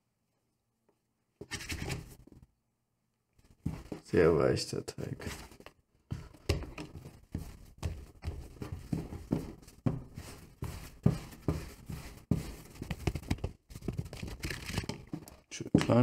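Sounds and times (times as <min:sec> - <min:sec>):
dry rubbing of dough: 0:07.0 - 0:14.4.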